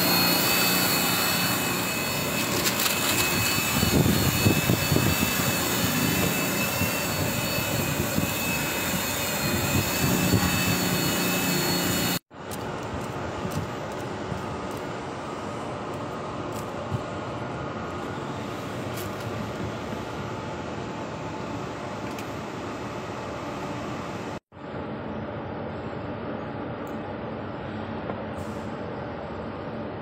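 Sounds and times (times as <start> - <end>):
machinery drone with high whine: 0.0 - 30.0.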